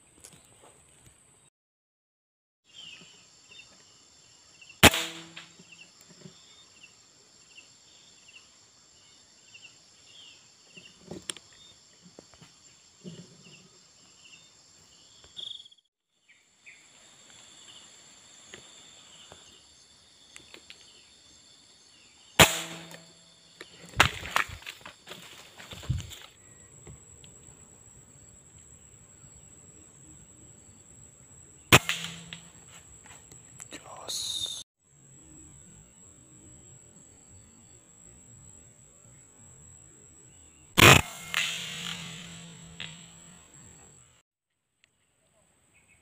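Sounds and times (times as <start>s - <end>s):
insects buzzing: 2.7s - 44.2s
air rifle shots: 4.8s - 5.6s, 22.4s - 23.1s, 31.7s - 32.6s, 40.8s - 43.3s.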